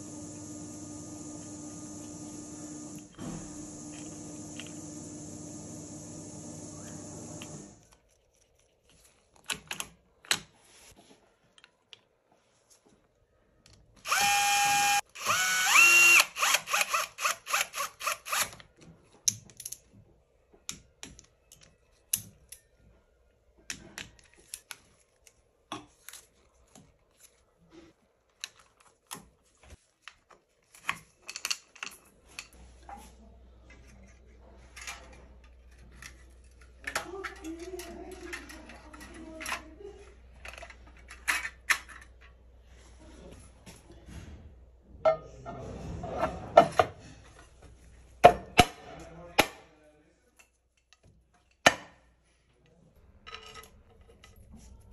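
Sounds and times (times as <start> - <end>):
power driver spinning: 0.0 - 7.8, 14.1 - 18.4
metal parts and tools clinking: 53.2 - 54.5.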